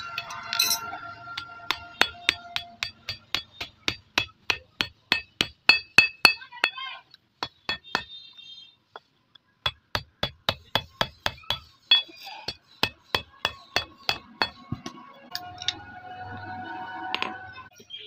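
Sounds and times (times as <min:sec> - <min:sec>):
hammer striking metal punch: 0:00.1 - 0:06.8, 0:07.4 - 0:08.1, 0:09.6 - 0:15.0
chain clinking: 0:00.2 - 0:01.0.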